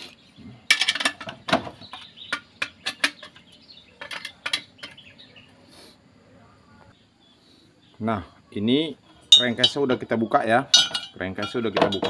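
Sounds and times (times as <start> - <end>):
metal rod tapping metal: 9.3 - 12.0.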